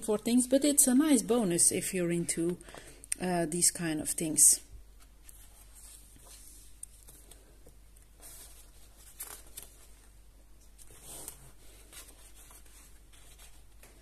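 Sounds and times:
paper pages turning: 5.0 - 14.0.

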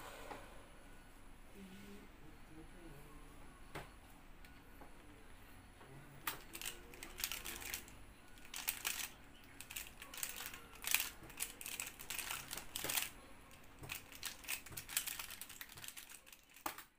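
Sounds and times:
plastic puzzle clicking: 6.3 - 16.9.

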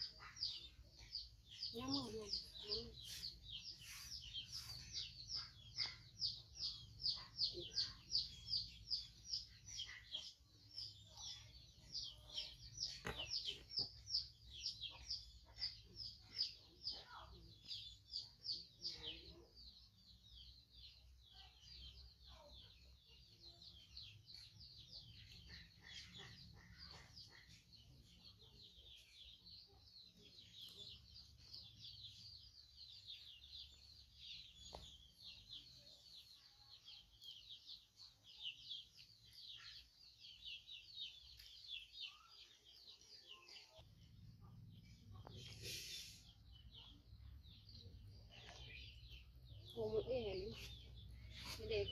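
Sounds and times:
small bird chirping: 0.0 - 51.9.

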